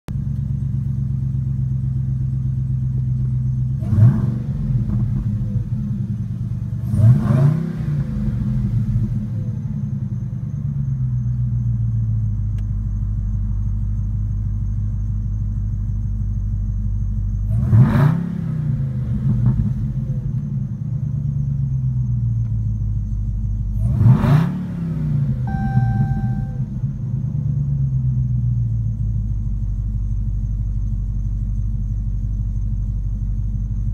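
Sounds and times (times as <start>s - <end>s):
car engine idling and revving: 0.1s - 33.9s
dashboard warning chime: 25.5s - 26.7s.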